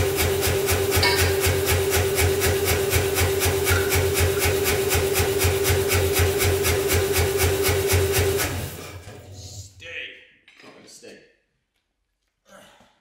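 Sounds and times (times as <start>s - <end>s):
power hammer motor hum: 0.0s - 9.7s
compressor pulsing: 0.0s - 9.8s.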